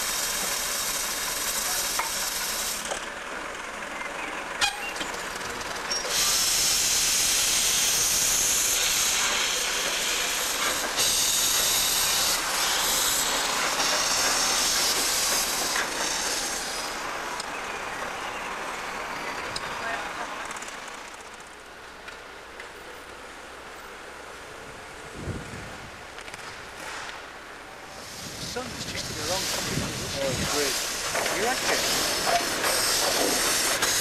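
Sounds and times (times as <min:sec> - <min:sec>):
steam hissing from locomotive: 0:00.0 - 0:03.0, 0:05.5 - 0:19.9, 0:27.8 - 0:34.0.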